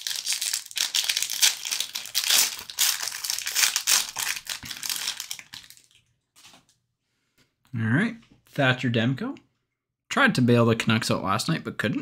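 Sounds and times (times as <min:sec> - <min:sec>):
foil wrapper crinkling: 0:00.0 - 0:06.6.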